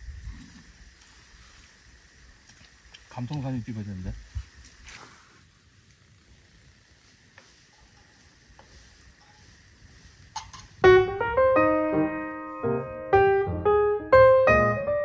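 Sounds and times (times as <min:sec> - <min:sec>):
faint steady hiss: 0:00.0 - 0:15.0
background piano music: 0:10.8 - 0:15.0.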